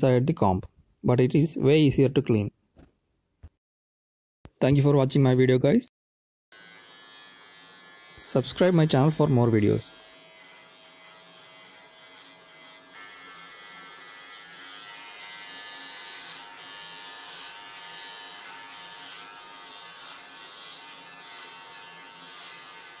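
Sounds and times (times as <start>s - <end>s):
electric hair clipper buzzing: 6.5s - 23.0s.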